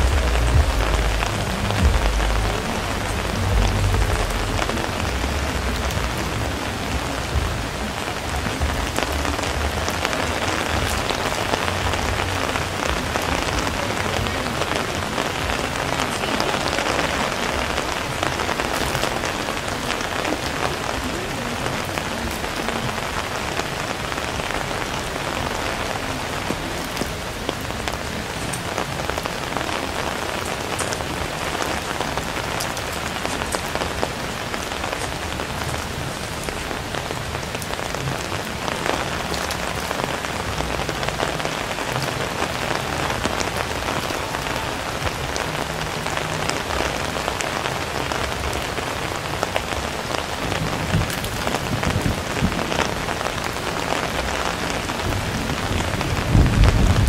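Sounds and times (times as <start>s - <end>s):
low rumble: 0.0s - 14.2s
rain on a street: 0.0s - 57.0s.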